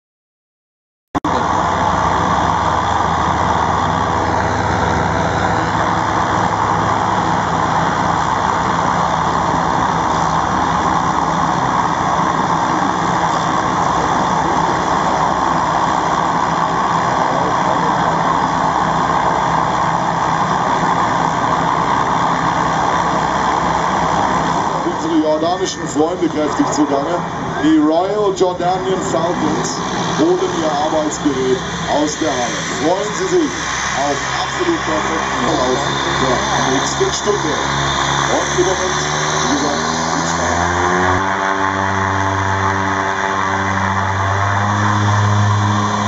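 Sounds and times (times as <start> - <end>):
turboprop engines droning: 1.2 - 46.0.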